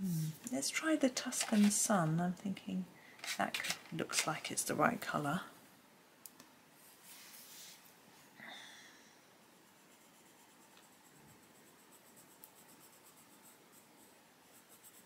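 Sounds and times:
pencil scratching on paper: 9.6s - 15.0s.

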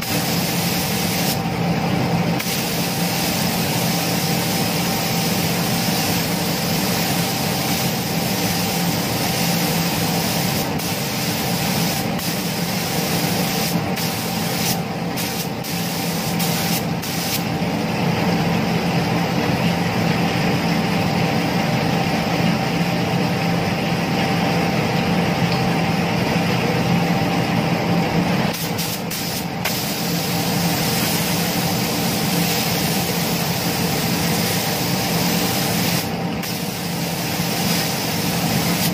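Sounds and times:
paint spray gun hissing: 0.0s - 1.4s, 2.4s - 17.5s, 28.5s - 38.9s
steady hum: 0.0s - 38.9s.

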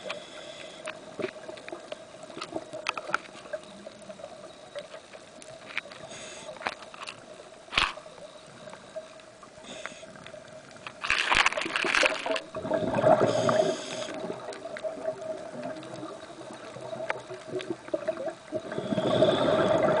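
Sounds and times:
regulator breath hiss: 0.0s - 1.0s, 6.0s - 6.7s, 9.6s - 10.2s, 13.1s - 14.3s, 18.7s - 19.9s
faint steady hum: 0.0s - 20.0s
bubbles gurgling: 11.0s - 20.0s.

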